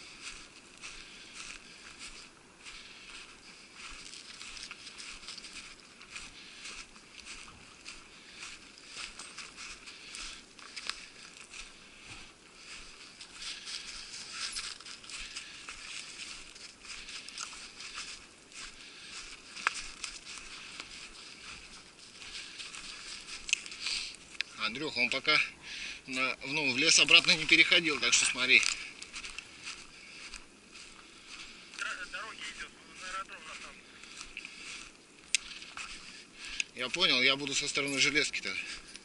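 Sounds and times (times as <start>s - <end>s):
footsteps crunching through snow: 0.0s - 39.0s
twigs rustling against clothing: 0.0s - 39.0s.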